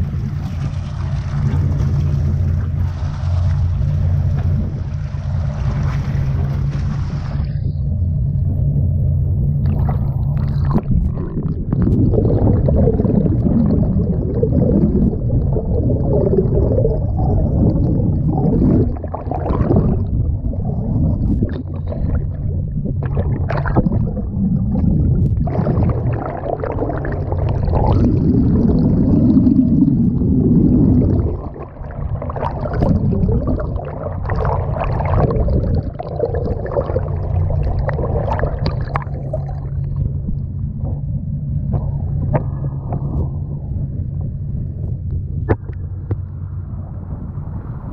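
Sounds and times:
seawater rushing and splashing: 0.0s - 7.8s, 9.6s - 39.9s
boat engine humming: 0.0s - 47.9s.

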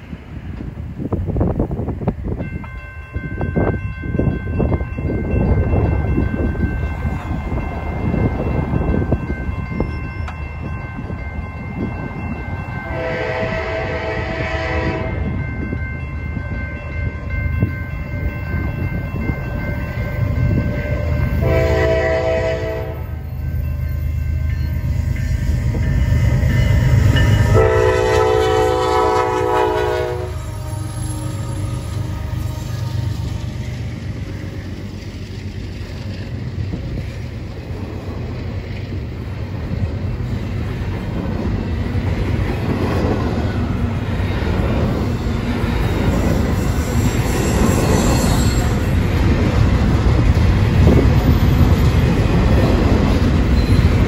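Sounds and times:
railroad crossing bell ringing: 1.4s - 35.0s, 39.2s - 54.0s
locomotive horn blasts: 12.9s - 15.4s, 20.8s - 23.1s, 27.4s - 33.6s.

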